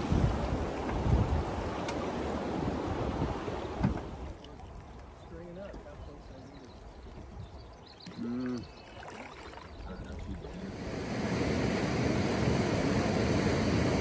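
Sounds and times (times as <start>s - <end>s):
short vocal sound: 8.1s - 8.6s.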